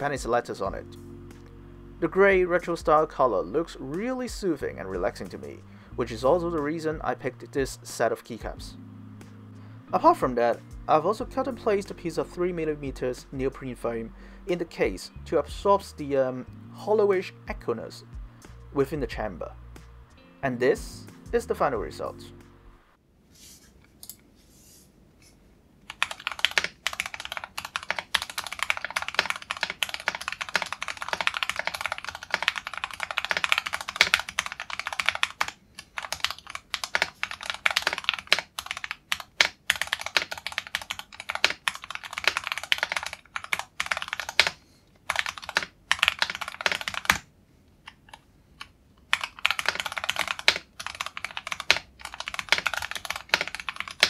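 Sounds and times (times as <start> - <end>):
mechanical keyboard typing: 25.9 - 47.3, 49.0 - 54.0.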